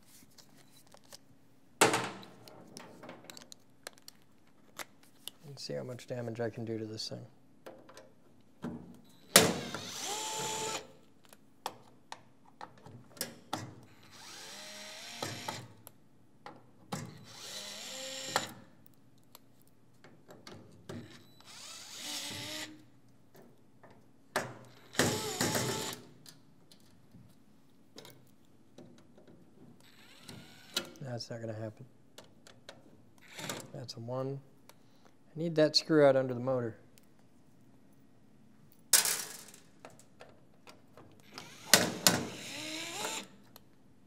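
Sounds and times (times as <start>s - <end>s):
cordless drill whirring: 9.4s - 11.0s, 14.0s - 15.7s, 17.1s - 18.5s, 21.4s - 22.8s, 24.9s - 26.0s, 29.9s - 30.8s, 41.2s - 43.4s.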